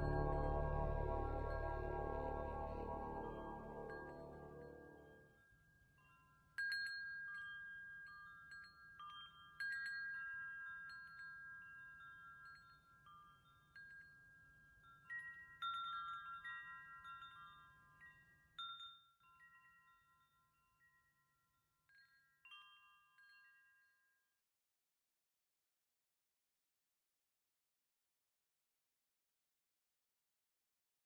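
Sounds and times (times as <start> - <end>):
wind chimes ringing: 0.0 - 5.2, 6.0 - 21.0, 21.9 - 23.9.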